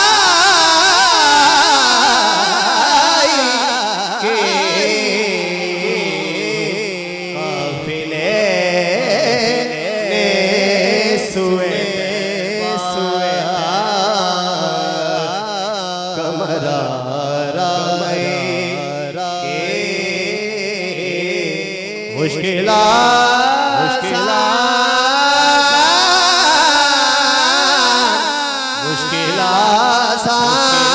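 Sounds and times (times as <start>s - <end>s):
man singing unaccompanied: 0.0s - 30.9s.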